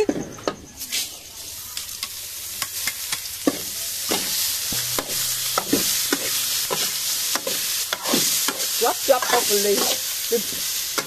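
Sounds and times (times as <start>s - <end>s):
rice sizzling in a wok: 0.7s - 11.0s
metal spatula scraping a wok: 2.8s - 11.0s.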